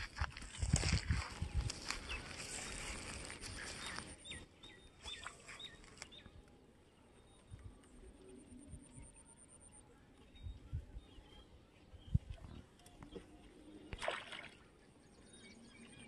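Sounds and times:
small birds chirping: 0.4s - 6.4s.

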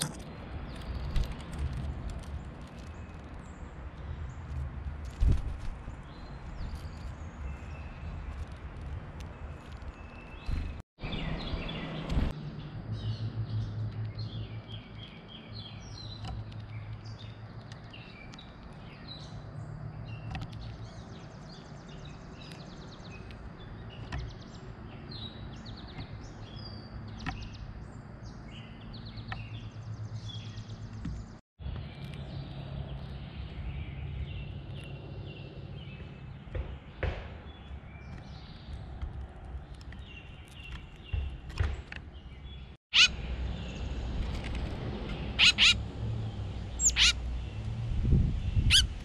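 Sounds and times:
songbirds chirping and trilling: 0.0s - 49.0s.

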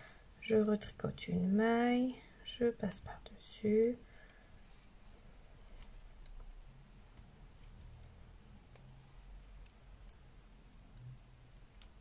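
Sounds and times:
metal knitting needles clicking: 5.6s - 6.5s, 9.5s - 12.0s.

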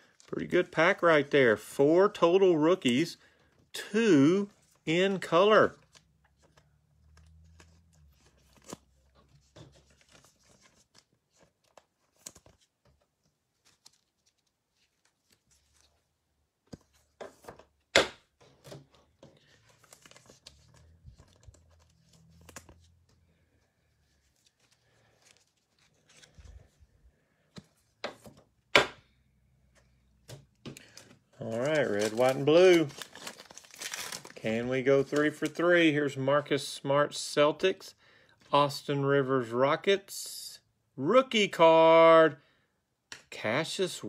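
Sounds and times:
cards rustling and tapping: 5.7s - 26.8s, 27.4s - 34.4s.

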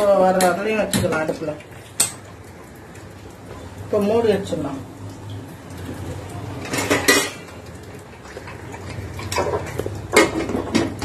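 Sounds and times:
steel cookware clanking: 6.6s - 7.6s.

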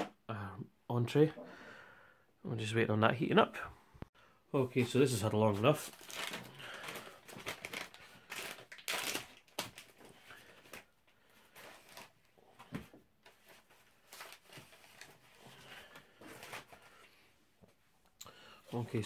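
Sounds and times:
ration packaging crinkling: 5.5s - 10.9s.

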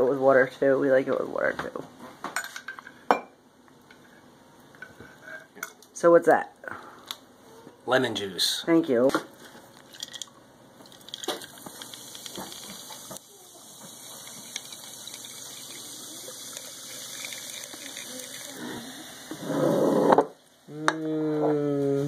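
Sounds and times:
seltzer hissing and fizzing: 11.0s - 20.7s
person humming: 20.7s - 22.0s.

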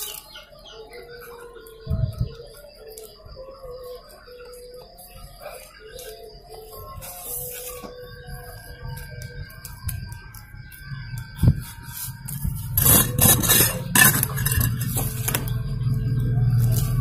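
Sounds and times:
rough scraping: 11.6s - 15.5s.

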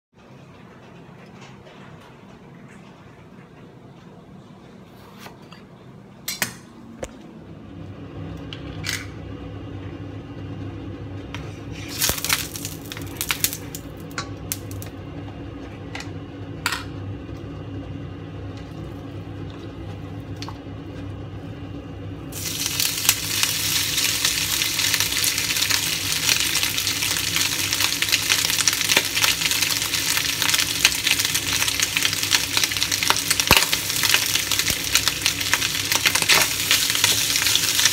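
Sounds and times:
steady low hum: 5.6s - 37.9s
meat sizzling in a wok: 11.8s - 14.9s, 22.3s - 37.9s.

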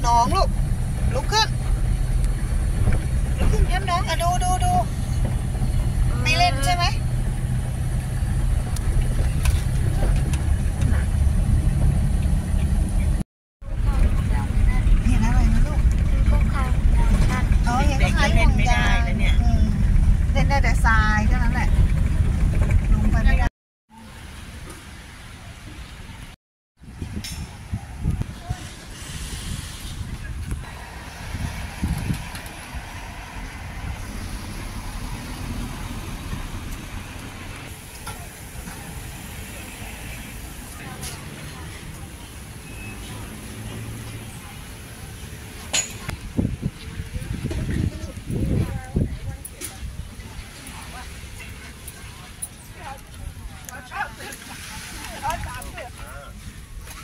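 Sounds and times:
car driving slowly: 0.0s - 23.4s, 30.0s - 49.4s.

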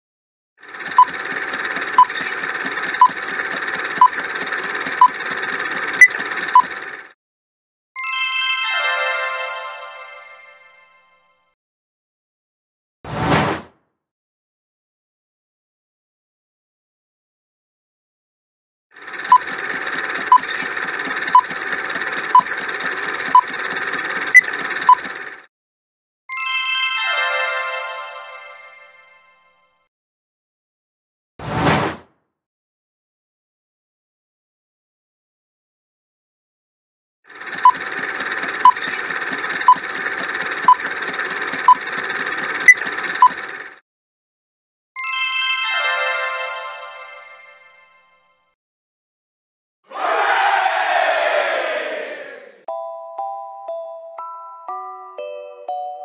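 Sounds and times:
rapid timer ticking: 0.6s - 7.1s, 19.0s - 25.5s, 37.3s - 43.8s
short timer beeps: 0.8s - 6.8s, 19.3s - 25.2s, 37.5s - 43.4s.

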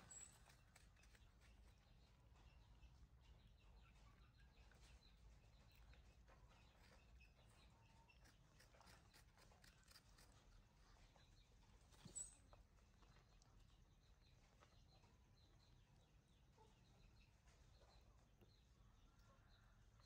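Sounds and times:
small ticks: 0.0s - 2.7s, 3.8s - 10.7s
faint chirps: 0.0s - 20.0s
faint squeak: 11.8s - 12.6s.

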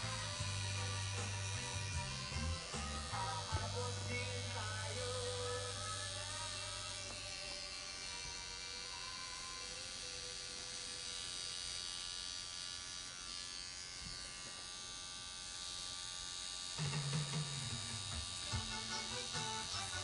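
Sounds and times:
low-pitched music: 0.0s - 7.0s
tattoo machine buzzing: 0.0s - 20.0s.

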